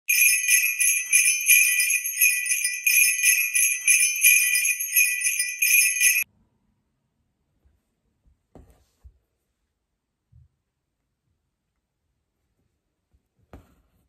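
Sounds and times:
jingle bells shaking: 0.1s - 6.2s.

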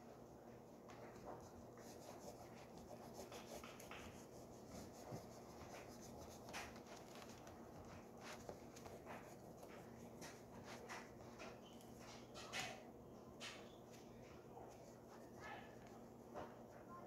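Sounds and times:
pastel scratching on paper: 1.2s - 11.2s.

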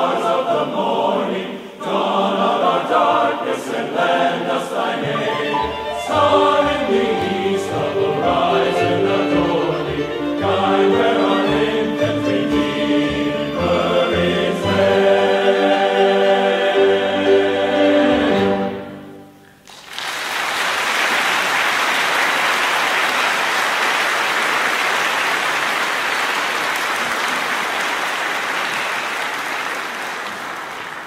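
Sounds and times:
male choir sustained chord: 0.0s - 19.2s
audience applause: 19.6s - 31.0s.

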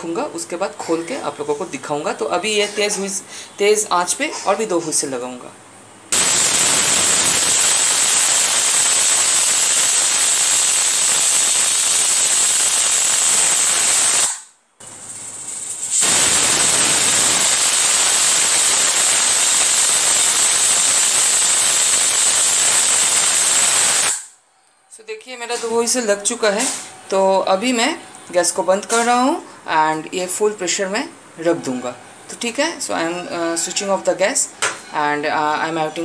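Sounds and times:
pressure cooker whistling: 6.2s - 14.4s, 16.0s - 24.3s.

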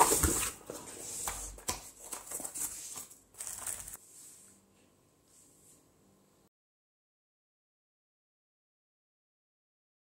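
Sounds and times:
cardboard and paper rustling: 0.0s - 4.0s.

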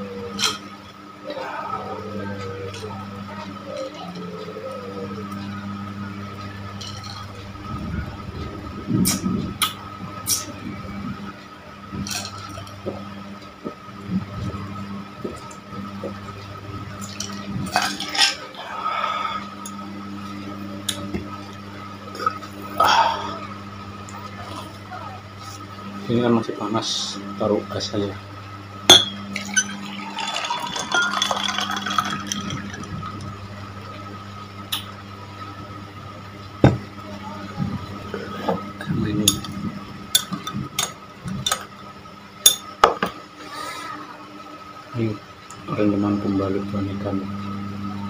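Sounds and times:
ice clinking against glass: 28.9s - 33.1s
glass and ice clatter: 28.9s - 33.3s.

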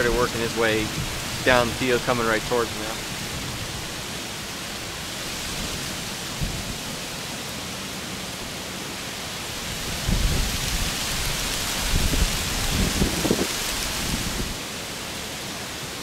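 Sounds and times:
wind buffeting microphone: 0.0s - 7.0s, 9.6s - 14.6s
steady outdoor hiss: 0.0s - 16.0s.

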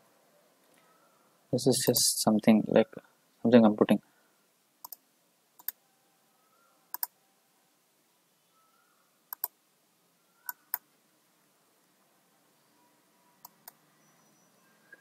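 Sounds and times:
mouse button clicks: 9.3s - 9.5s.

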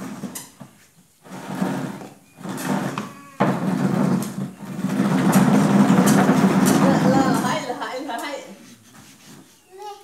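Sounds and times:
plastic chair scraping on concrete: 0.0s - 8.0s.

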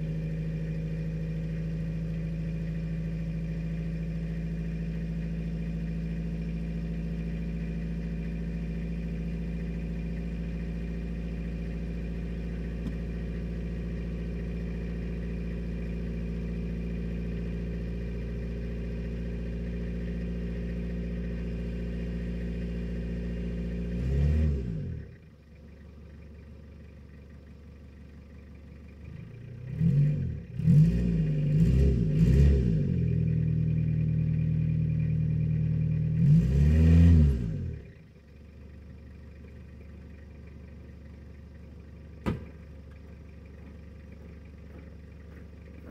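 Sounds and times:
diesel engine idling and revving: 0.0s - 45.9s.

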